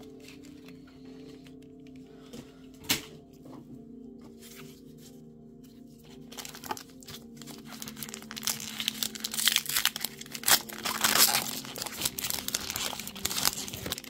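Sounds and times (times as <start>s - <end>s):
foil wrapper crinkling: 6.2s - 14.0s.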